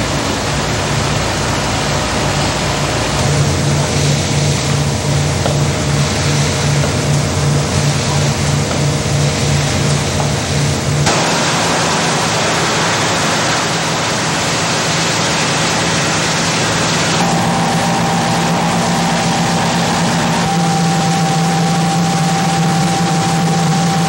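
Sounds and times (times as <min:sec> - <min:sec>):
fire engines and pumps droning: 0:00.0 - 0:24.0
steady hum: 0:00.0 - 0:24.0
thin whine: 0:02.2 - 0:24.0
hose spray rushing: 0:11.1 - 0:24.0.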